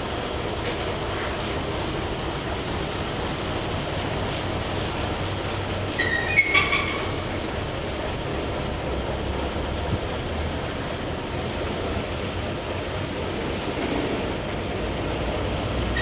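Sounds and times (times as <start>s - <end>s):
diesel truck engine running: 0.0s - 16.0s
high-pitched squeal with click: 6.0s - 7.1s.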